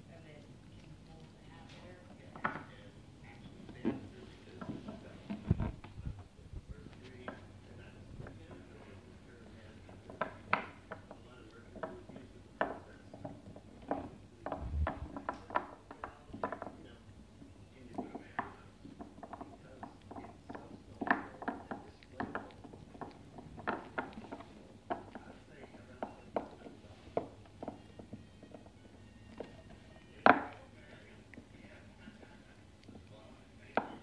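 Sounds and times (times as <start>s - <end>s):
dog gnawing hard chew: 18.0s - 33.8s.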